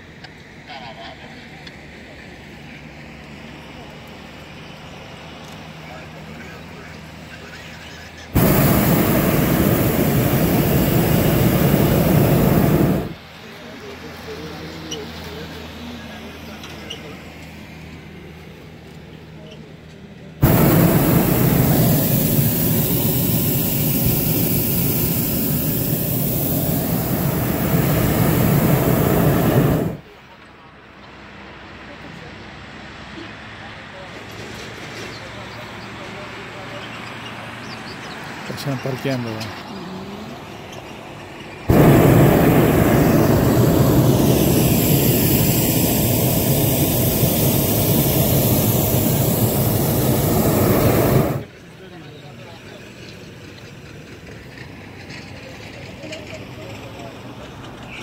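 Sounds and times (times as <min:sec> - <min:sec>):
propane burner firing: 0:08.3 - 0:13.2, 0:20.4 - 0:30.1, 0:41.7 - 0:51.5.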